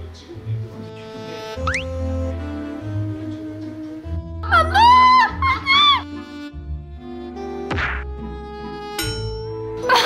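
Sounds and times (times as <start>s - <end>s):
background music: 0.0s - 10.0s.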